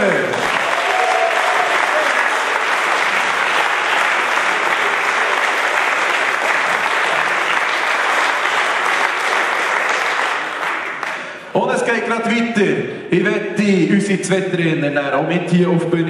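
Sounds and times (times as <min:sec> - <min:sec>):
audience clapping: 0:00.0 - 0:11.5.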